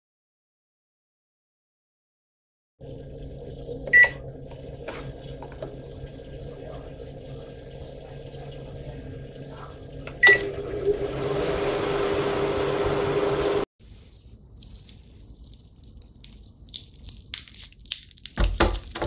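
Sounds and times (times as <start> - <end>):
microwave oven beeping: 2.8 - 13.7
microwave oven humming: 2.8 - 13.7.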